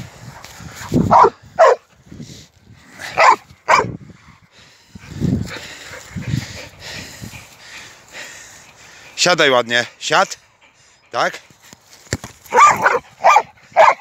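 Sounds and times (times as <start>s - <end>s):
dog barking: 1.1s - 1.8s, 3.2s - 3.9s, 12.5s - 14.0s.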